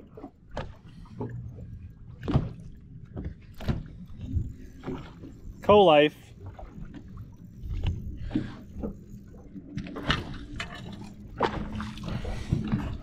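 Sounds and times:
knocks and bumps on boat: 0:02.2 - 0:05.4, 0:09.7 - 0:13.0.

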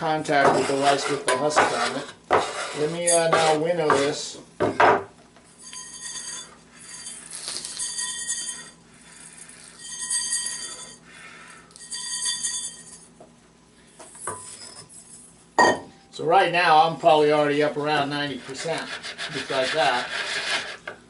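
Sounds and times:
metal bowl ringing: 0:05.6 - 0:07.2, 0:07.8 - 0:08.8, 0:11.8 - 0:13.1, 0:15.6 - 0:16.2.

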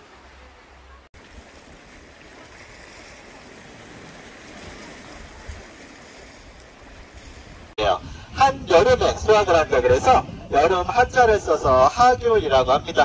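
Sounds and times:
waves washing over rocks: 0:00.0 - 0:07.8
wind rumbling on microphone: 0:01.2 - 0:13.0.

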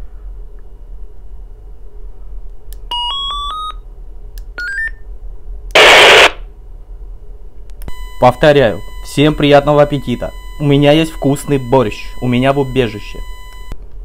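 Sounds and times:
radio static hiss: 0:05.8 - 0:06.4
walkie-talkie beeps: 0:07.9 - 0:13.8.

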